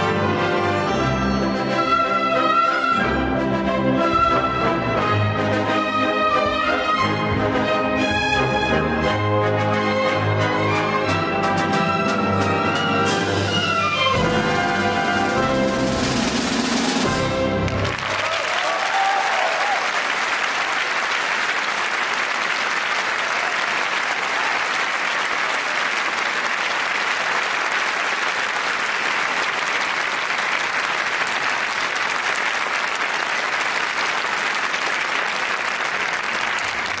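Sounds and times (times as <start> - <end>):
audience applauding: 16.4 - 37.0.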